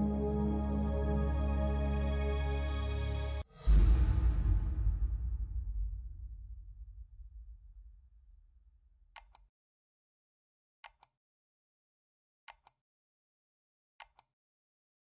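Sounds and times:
low rumble: 3.3s - 9.2s
mouse double-clicks: 12.5s - 12.8s, 14.0s - 14.3s.

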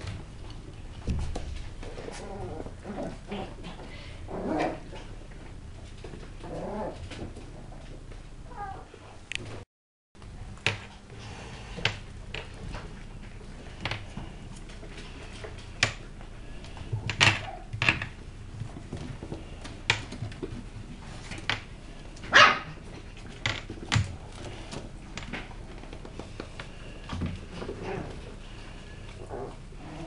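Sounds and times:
puppies barking: 22.3s - 22.8s.

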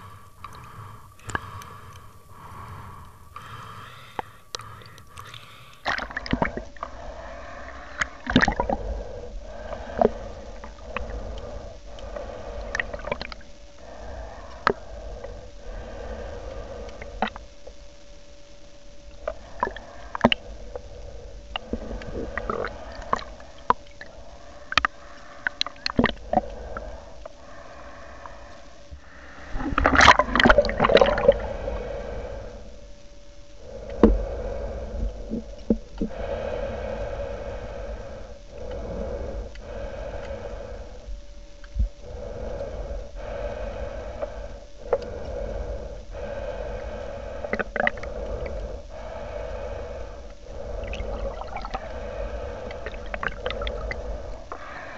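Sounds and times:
breathing through snorkel: 0.0s - 17.4s, 33.6s - 41.2s, 42.0s - 54.9s
water gurgling and sloshing: 0.0s - 17.4s, 19.1s - 32.6s, 33.6s - 54.9s.

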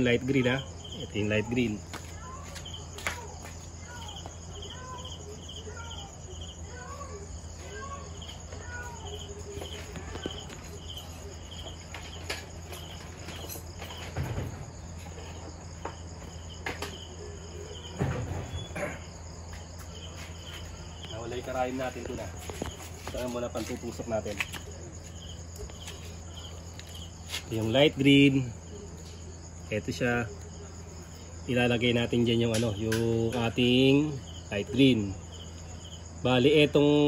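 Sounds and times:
faint voices: 0.0s - 13.3s
crickets chirping: 0.0s - 37.0s.

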